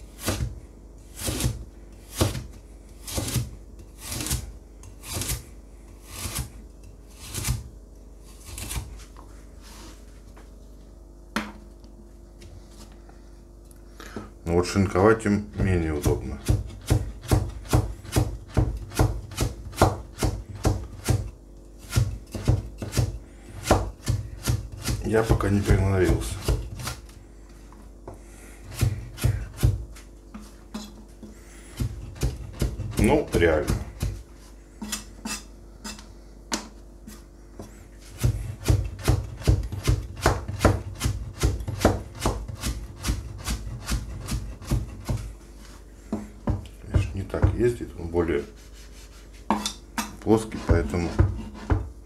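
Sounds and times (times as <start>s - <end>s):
knife chopping on cutting board: 0.2s - 5.4s, 6.0s - 6.5s, 15.5s - 27.0s, 28.1s - 34.2s, 34.8s - 45.3s, 46.1s - 47.7s, 48.5s - 51.9s.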